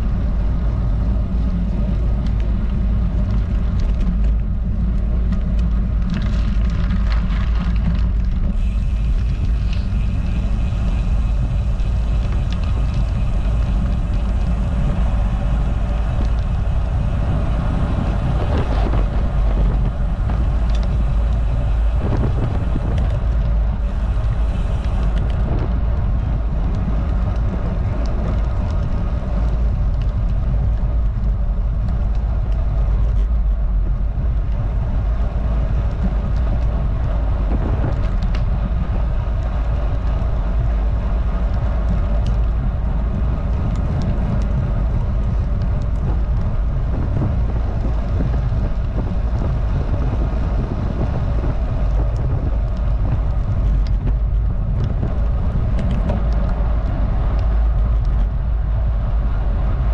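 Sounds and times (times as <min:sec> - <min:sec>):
bike tyres rolling on asphalt: 0:00.0 - 0:59.9
wind rumble on microphone: 0:00.0 - 0:59.9.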